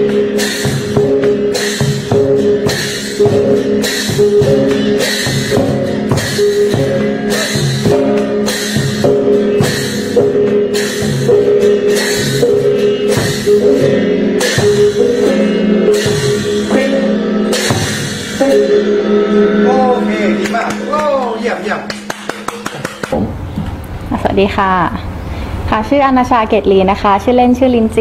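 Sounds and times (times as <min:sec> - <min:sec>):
ringing gong and cymbal: 0:00.0 - 0:21.7
heavy drum strokes: 0:00.0 - 0:23.6.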